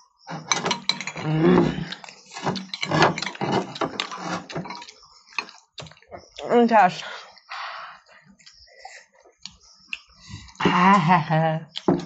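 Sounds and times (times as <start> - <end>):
metal spoons scraping glass bowls: 0.3 - 5.7
person speaking: 6.2 - 7.2.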